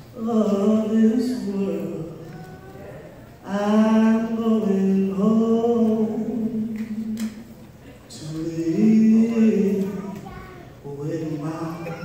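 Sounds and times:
man singing gospel solo: 0.0s - 12.0s.

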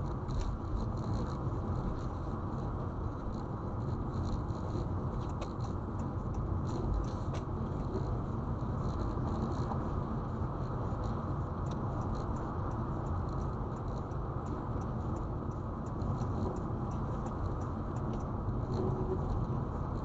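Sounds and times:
road and tyre noise in car: 0.0s - 20.0s
light ticks and taps: 4.2s - 20.0s.

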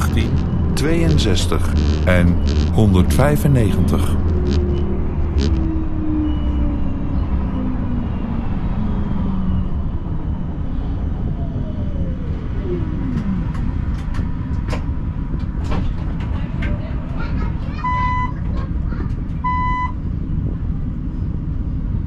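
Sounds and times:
electric drive whine: 0.0s - 5.9s
tram rumble: 0.0s - 22.0s.

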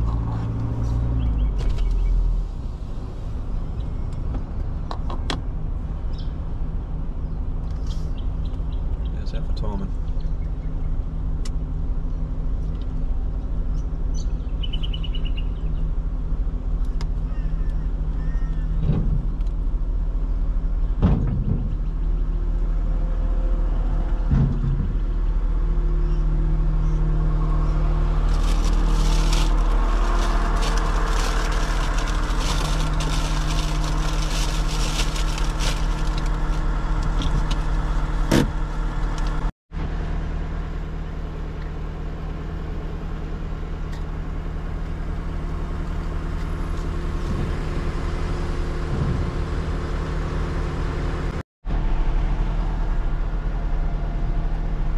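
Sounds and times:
vehicle engine and road rumble: 0.0s - 54.9s.

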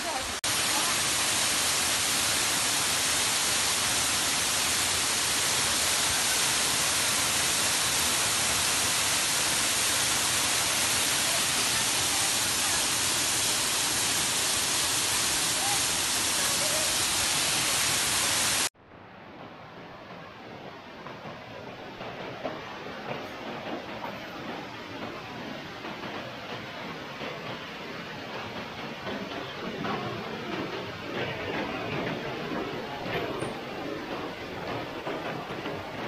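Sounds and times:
waterfall rushing: 0.0s - 18.7s.

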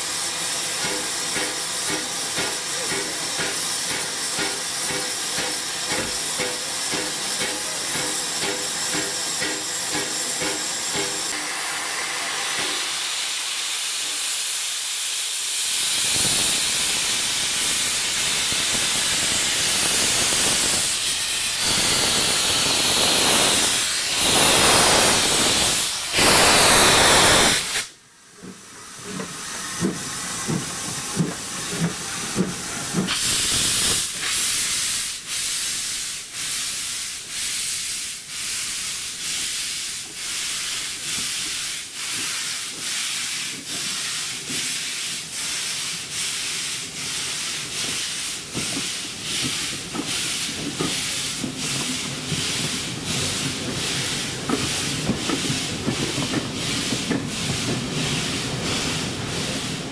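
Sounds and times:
loud hiss of steam: 0.0s - 59.9s
steam locomotive exhaust chuffs: 0.0s - 59.9s.

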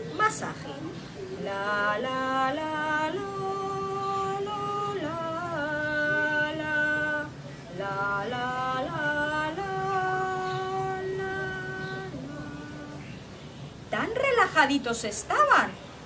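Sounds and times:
woman singing wordless tune: 0.0s - 15.8s.

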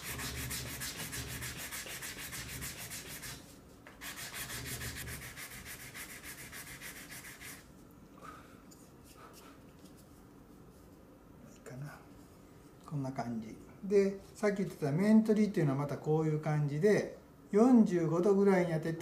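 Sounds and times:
sandpaper rubbing wood: 0.0s - 7.6s.

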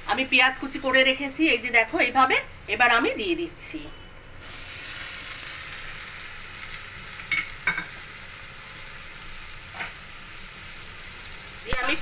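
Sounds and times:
onions sizzling in butter: 4.4s - 12.0s.

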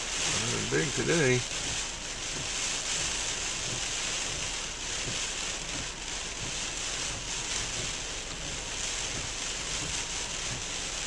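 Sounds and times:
heavy rain on car: 0.0s - 11.0s.

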